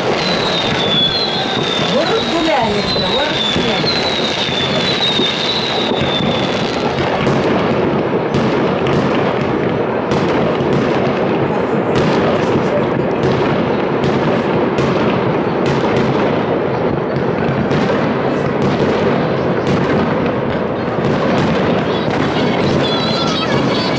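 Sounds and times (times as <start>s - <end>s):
high whistle: 0.0s - 6.8s
fireworks bangs and booms: 0.0s - 23.9s.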